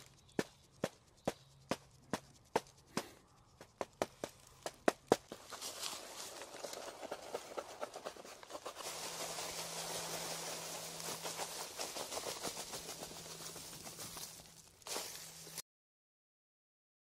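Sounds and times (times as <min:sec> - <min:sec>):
steady low hum: 0:00.0 - 0:15.6
charcoal scratching on paper: 0:01.1 - 0:14.2
dry leaves crackling and rustling: 0:03.3 - 0:15.6.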